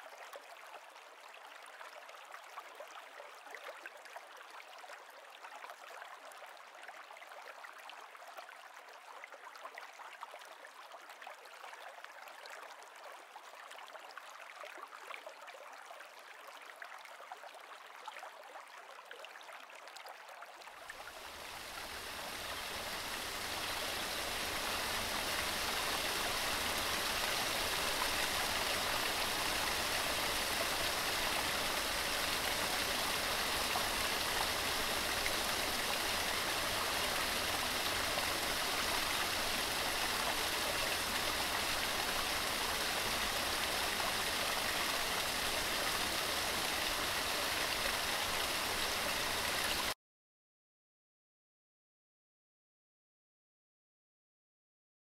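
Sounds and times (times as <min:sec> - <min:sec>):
water rushing over weir: 0:21.0 - 0:50.0.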